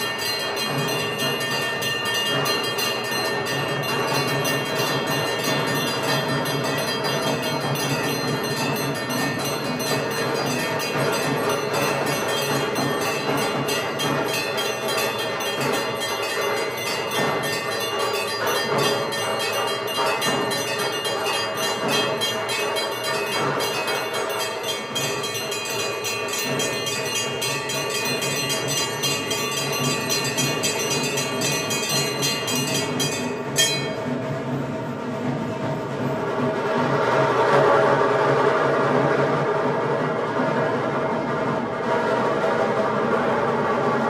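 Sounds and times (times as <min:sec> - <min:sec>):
sharp bell clang: 0:00.0 - 0:34.4
steady held tones: 0:00.0 - 0:35.2
bells ringing fast: 0:00.0 - 0:36.5.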